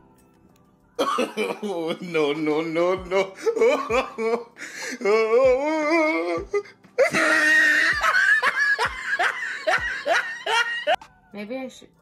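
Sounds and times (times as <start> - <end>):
woman laughing: 7.0 - 11.0.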